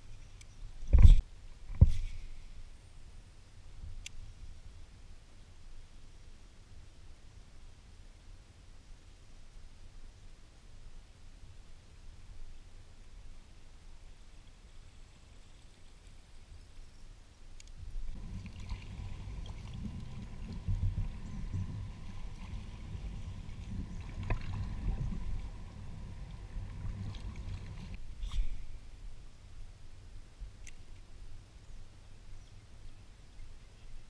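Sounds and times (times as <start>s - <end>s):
water swishing: 18.1s - 28.0s
kayak hull brushing through lily pads: 18.1s - 28.8s.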